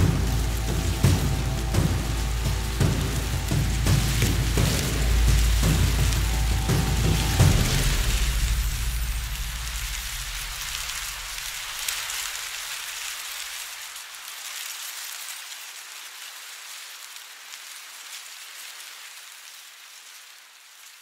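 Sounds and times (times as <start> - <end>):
low rumble: 0.0 - 12.4
rain-like hiss with crackle: 0.0 - 21.0.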